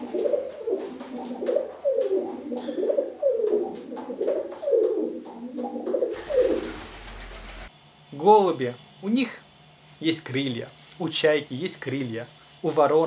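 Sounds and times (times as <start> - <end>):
pigeons cooing: 0.0 - 7.7.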